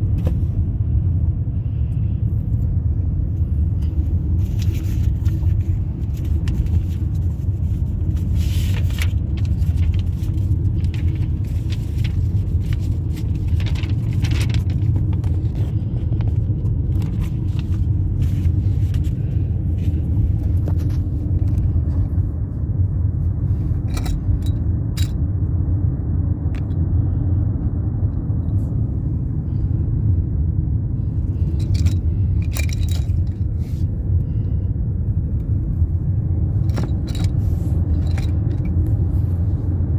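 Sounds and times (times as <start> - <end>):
road and engine rumble in car: 0.0 - 39.9.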